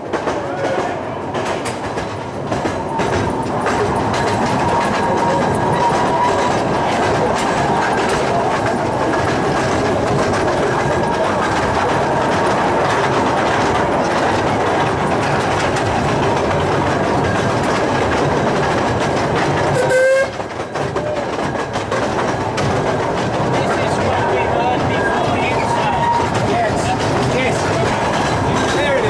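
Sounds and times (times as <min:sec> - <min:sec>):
train wheels clattering on track: 0:00.0 - 0:29.0
steam train whistle toot: 0:19.8 - 0:20.4.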